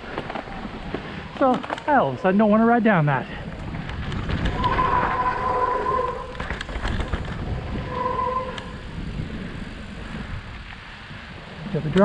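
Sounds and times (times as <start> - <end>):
bike clicks and rattles: 0.0 - 2.2, 3.5 - 4.8, 6.2 - 7.8
tyres rumbling on dirt trail: 0.0 - 12.0
bike brakes squealing: 4.5 - 6.6, 7.5 - 9.0.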